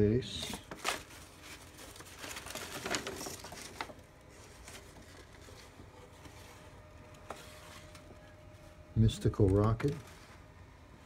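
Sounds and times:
low room hum: 0.0 - 11.0
paper rustling and crinkling: 0.2 - 10.6.

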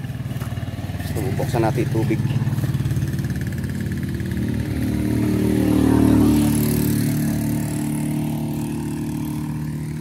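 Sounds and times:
small engine running: 0.0 - 10.0.

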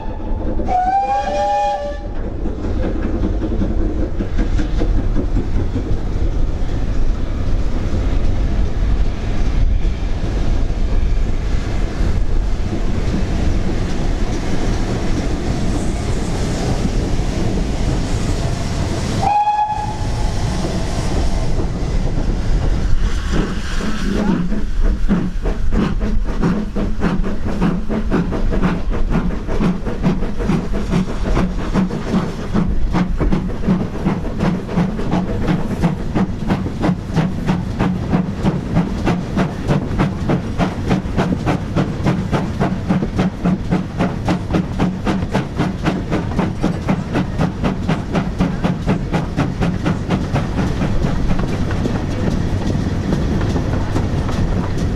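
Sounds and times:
steam whistle: 0.0 - 2.2, 19.2 - 20.4
steam locomotive chuffing: 0.0 - 54.9
steam train rumble: 0.0 - 54.9.

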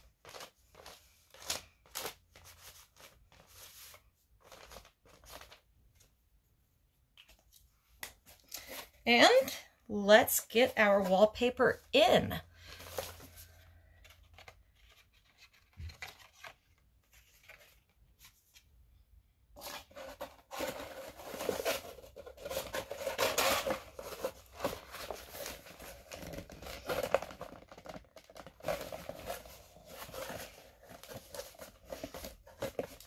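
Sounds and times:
paper rustling and crinkling: 0.0 - 6.1, 12.6 - 18.8, 19.6 - 33.0.

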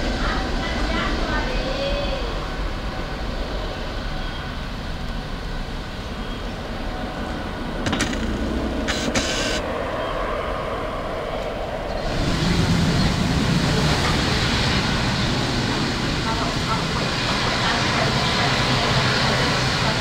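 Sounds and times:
distant jet airliner rumble: 0.0 - 20.0
brief crackles: 7.9 - 9.6.

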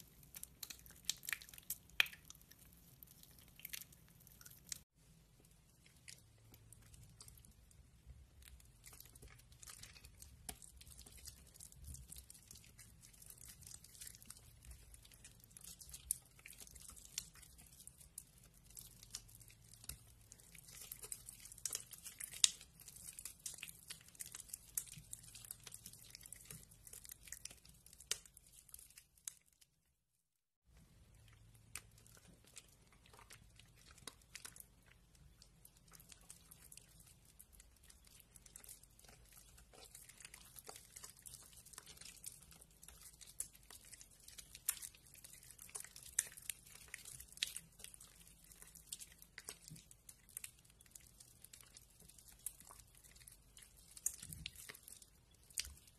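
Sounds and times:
soggy soap snapping: 0.0 - 4.8, 8.4 - 29.6
wet soap crackling and crunching: 0.0 - 55.9.

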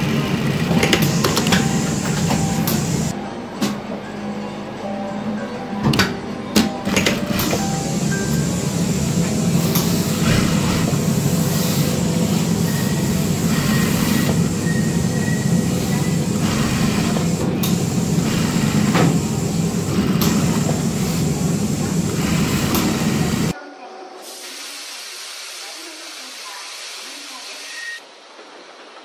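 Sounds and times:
sewing machine running: 0.0 - 3.1, 6.8 - 23.6.

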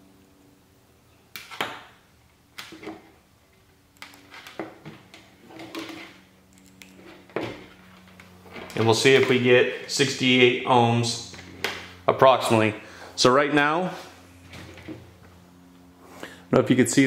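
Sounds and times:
faint steady hum: 0.0 - 17.0
wire leads rustling: 2.6 - 12.7.

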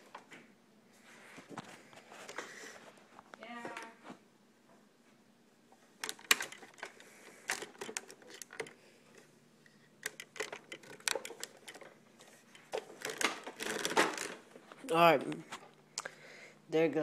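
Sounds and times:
hands handling hard plastic: 6.0 - 15.8.

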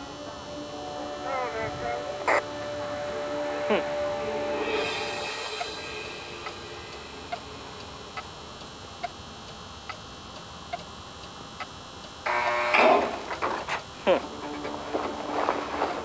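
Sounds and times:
loud pitched sound: 0.0 - 9.4
clock ticking: 6.4 - 12.6.

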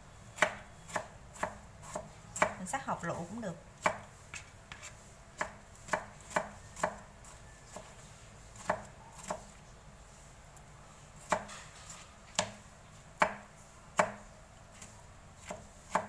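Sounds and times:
knife chopping on plastic board: 0.4 - 2.6, 3.8 - 7.0, 8.6 - 9.5, 11.2 - 11.6, 12.3 - 12.6, 13.2 - 14.2, 15.4 - 16.0.

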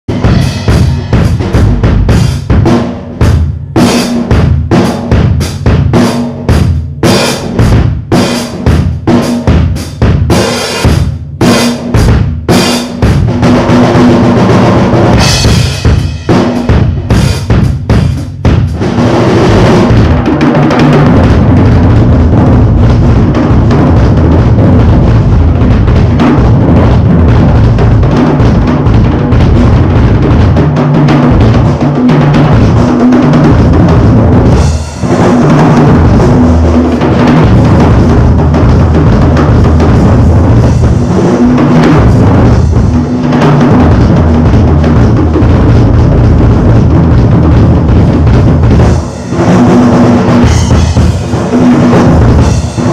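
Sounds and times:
drums hit with sledgehammer: 0.0 - 52.9
cymbals crashing: 0.1 - 1.4, 48.9 - 52.9.

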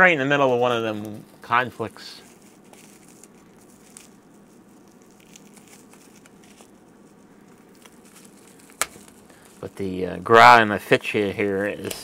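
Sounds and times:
faint steady hum: 0.0 - 12.0
plastic bag crinkling: 0.0 - 12.0.

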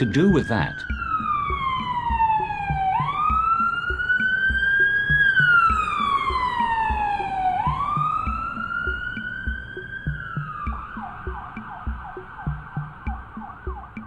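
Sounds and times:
wailing siren: 0.0 - 14.0.

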